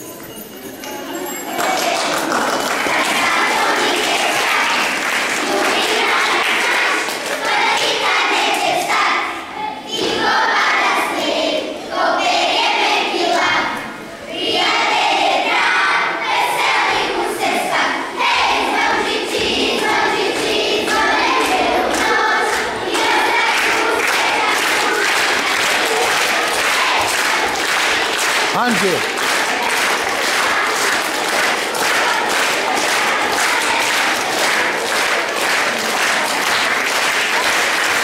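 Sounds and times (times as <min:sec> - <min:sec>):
children's choir singing: 0:00.0 - 0:38.0.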